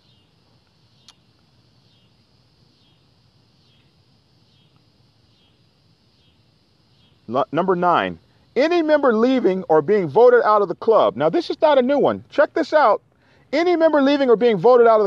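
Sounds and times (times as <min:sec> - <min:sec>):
faint outdoor ambience: 0:00.0 - 0:15.0
faint click: 0:00.5 - 0:01.5, 0:04.6 - 0:04.9.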